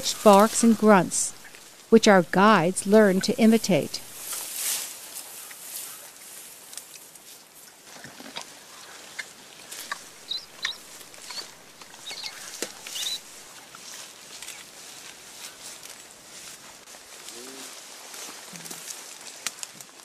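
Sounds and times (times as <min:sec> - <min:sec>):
vegetation snapping and crackling: 0:18.2 - 0:20.0.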